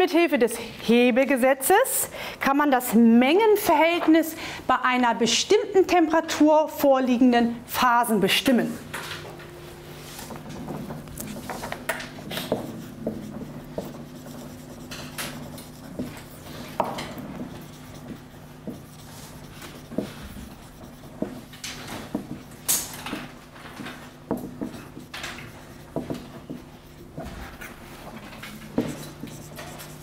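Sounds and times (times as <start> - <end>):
low electrical hum: 0.0 - 30.0
marker writing on whiteboard: 11.0 - 30.0.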